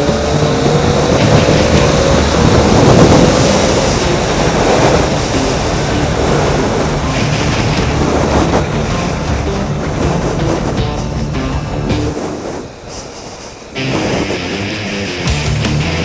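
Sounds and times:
motorcycle engine pulling hard: 0.0 - 12.2
wind rush on microphone: 0.0 - 15.2.

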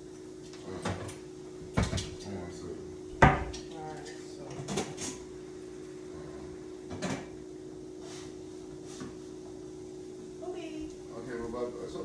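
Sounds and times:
steady low hum: 0.0 - 12.0
kitchen knocks and clatters: 0.8 - 2.2, 4.4 - 5.2, 6.9 - 7.3.

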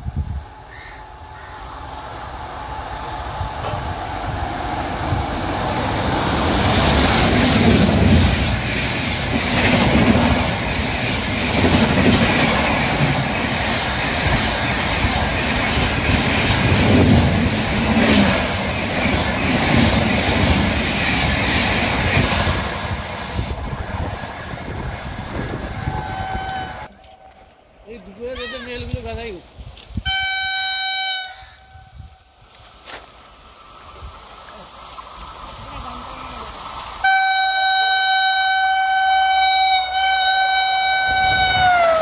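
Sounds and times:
train wheels on rail: 0.0 - 42.0.

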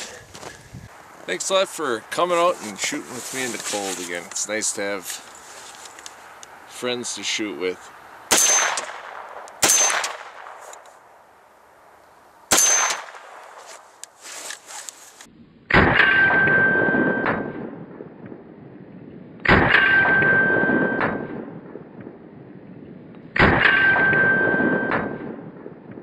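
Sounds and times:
gunshots: 8.3 - 10.7, 12.5 - 13.6, 15.7 - 17.8, 19.4 - 21.5, 23.4 - 25.7.

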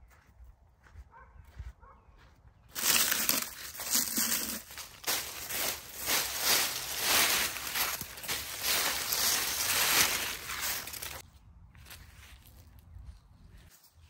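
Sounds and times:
dry crinkling and rustling: 2.7 - 11.2.

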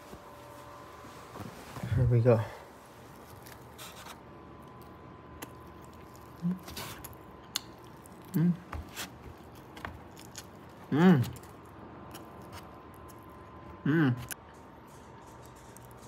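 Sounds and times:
person chewing food: 3.0 - 16.0
person humming mmm: 6.4 - 6.7, 8.2 - 8.7, 10.9 - 11.4, 13.8 - 14.4.

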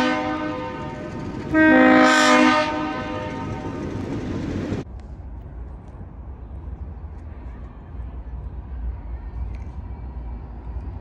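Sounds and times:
locomotive air horn blasts: 0.0 - 3.9
train noise: 0.0 - 11.0.

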